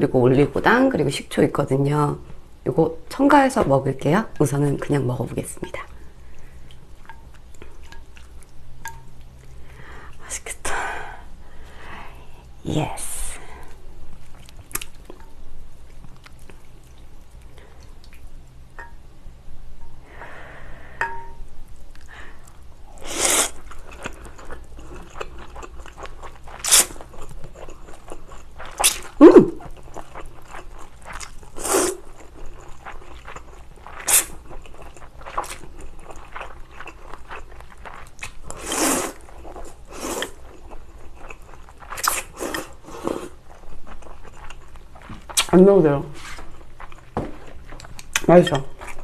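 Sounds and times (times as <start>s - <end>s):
chewing: 5.8s - 10.2s, 14.2s - 18.3s, 21.7s - 45.5s, 46.2s - 49.0s
broth sipped: 22.0s - 23.6s
noodles slurped: 38.2s - 40.7s.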